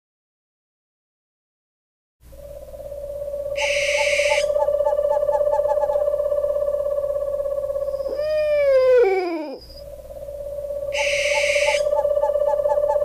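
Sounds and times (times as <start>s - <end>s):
cartoon owl hoot: 2.3s - 13.0s.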